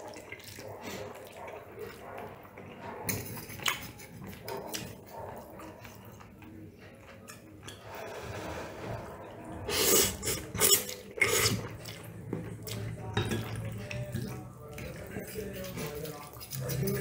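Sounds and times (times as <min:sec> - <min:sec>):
person slurping noodles: 0:07.9 - 0:11.8
cutlery clinking on ceramic bowl: 0:13.2 - 0:17.0.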